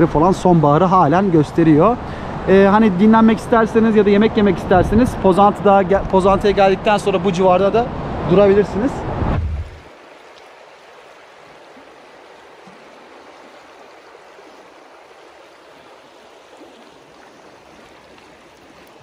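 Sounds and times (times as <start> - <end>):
low rumble: 7.9 - 9.9
river running over stones: 9.4 - 19.0.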